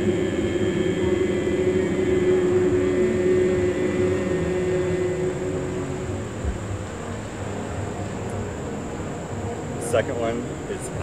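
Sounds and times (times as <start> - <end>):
group chanting held note: 0.0 - 6.4.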